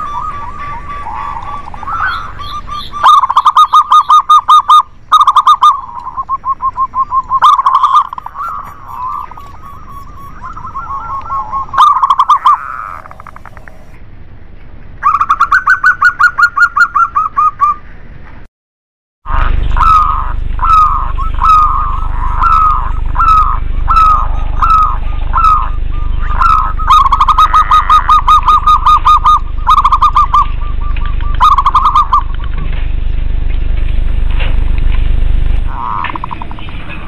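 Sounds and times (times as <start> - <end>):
doves cooing: 0.0 - 14.0, 19.3 - 33.1, 35.7 - 37.0.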